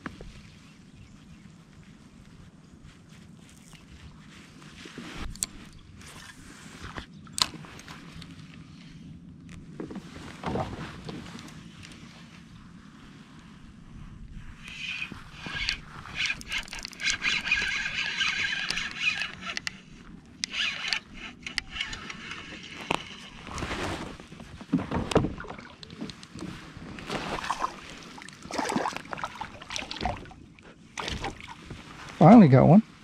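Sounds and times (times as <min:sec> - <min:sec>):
fishing reel whirring: 0:14.6 - 0:23.5
knocks and scrapes on kayak hull: 0:22.0 - 0:28.1.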